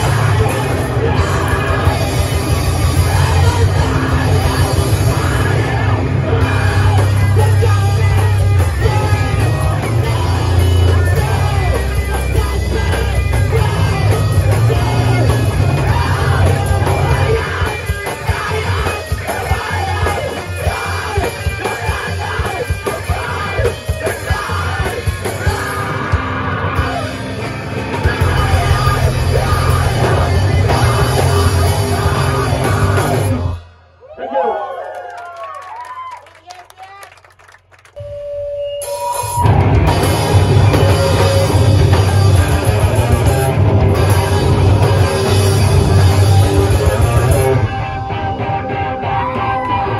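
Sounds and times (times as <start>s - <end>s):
live rock band playing: 0.0s - 33.8s, 38.8s - 49.9s
shouted vocals: 34.0s - 37.2s.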